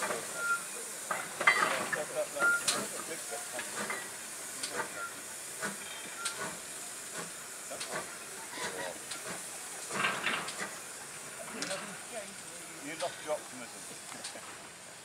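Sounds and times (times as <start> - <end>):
locomotive steam hissing: 0.0 - 15.0.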